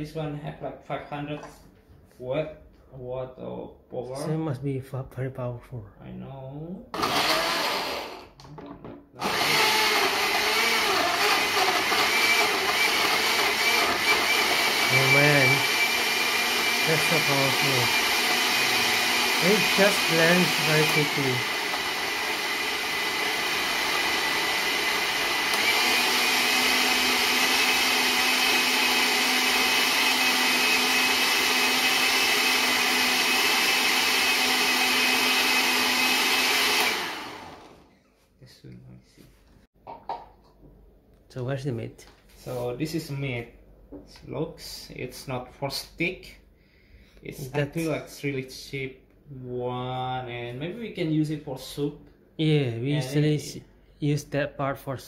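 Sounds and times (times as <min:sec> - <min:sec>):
blender chopping fruit: 0:07.0 - 0:08.4, 0:09.2 - 0:37.9.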